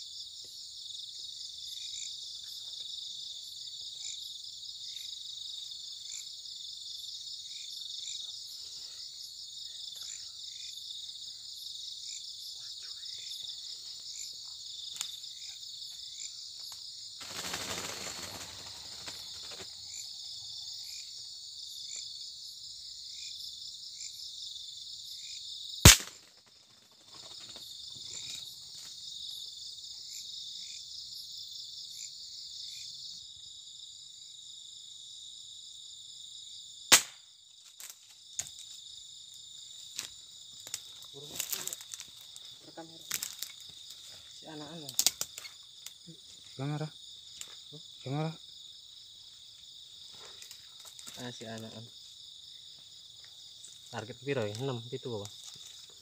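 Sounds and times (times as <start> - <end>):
crickets and night insects: 0.0 - 56.0
sharp gunshot: 25.9 - 26.2, 36.9 - 37.2.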